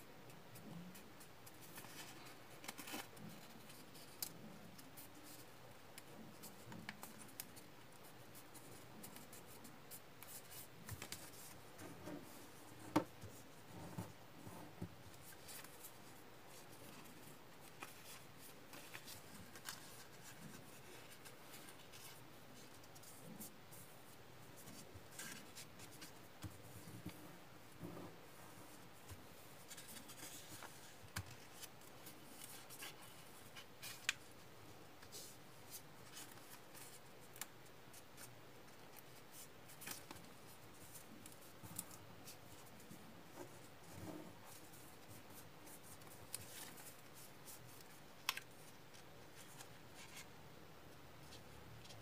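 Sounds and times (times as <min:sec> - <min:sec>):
paper rustling and creasing: 0:00.9 - 0:05.5, 0:08.3 - 0:23.4, 0:29.0 - 0:34.4, 0:35.0 - 0:50.3.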